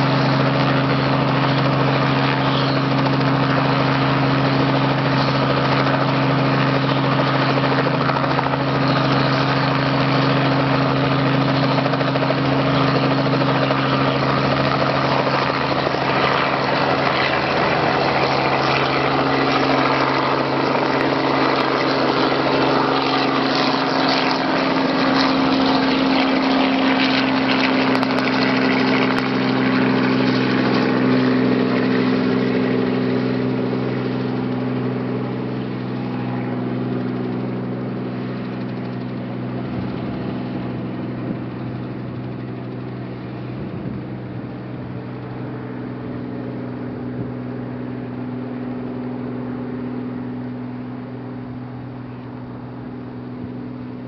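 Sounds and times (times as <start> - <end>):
helicopter engine and rotor drone: 0.0 - 54.0.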